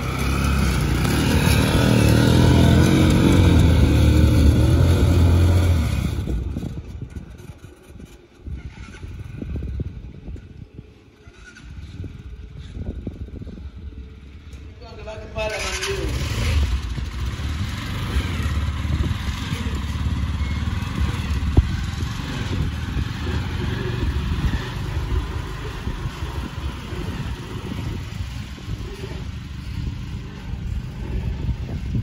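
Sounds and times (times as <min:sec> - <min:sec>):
small engine running: 0:15.5 - 0:32.0.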